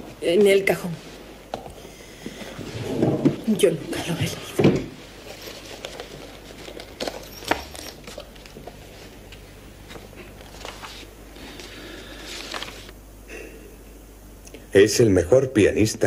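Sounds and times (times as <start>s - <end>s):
paper pages turning: 5.2s - 13.0s.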